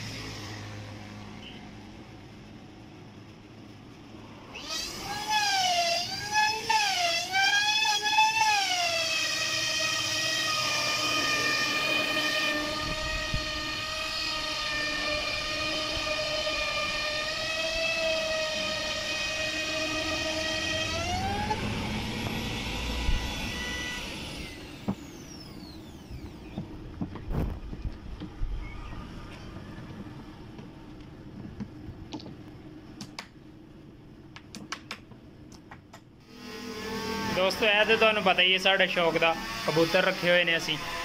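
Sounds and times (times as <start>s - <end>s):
electric router whining: 4.5s - 30.5s, 36.2s - 41.0s.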